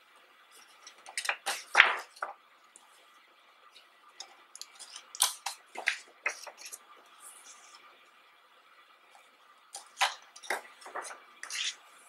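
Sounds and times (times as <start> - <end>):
book pages being turned: 0.5 - 3.1, 4.7 - 7.9, 9.8 - 12.0.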